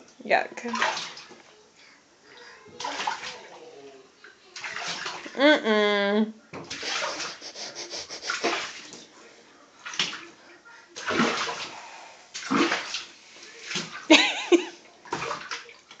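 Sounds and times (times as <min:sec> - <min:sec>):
bath water splashing: 0:00.6 - 0:01.5, 0:02.7 - 0:05.6, 0:06.6 - 0:09.2, 0:09.8 - 0:16.0.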